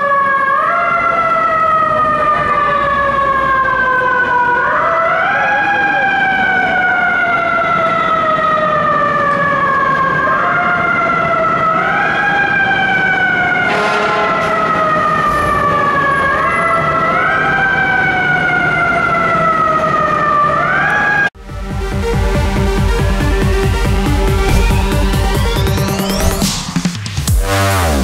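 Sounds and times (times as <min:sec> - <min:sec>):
mechanical siren wailing: 0:00.0 - 0:21.3, 0:22.7 - 0:26.8
truck engine rumble: 0:21.4 - 0:27.4.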